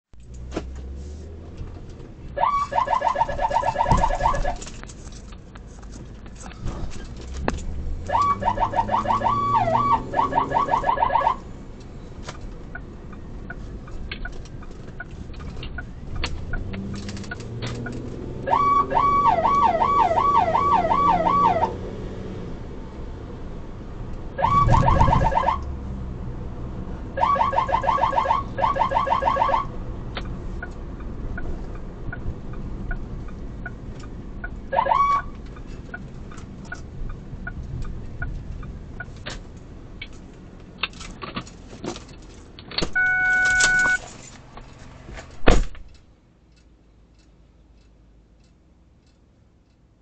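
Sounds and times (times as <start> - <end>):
car cabin noise: 0.2 - 21.8, 24.4 - 25.7, 27.2 - 46.0
electronic siren pulsing tones: 2.4 - 4.6, 8.1 - 11.4, 18.4 - 21.8, 24.4 - 25.6, 27.2 - 29.7, 34.7 - 35.3
siren chirp: 2.4 - 4.6, 8.1 - 11.4, 18.4 - 21.8, 24.4 - 25.6, 27.2 - 29.7, 34.7 - 35.3, 43.0 - 44.0
regular ticking: 45.8 - 50.0.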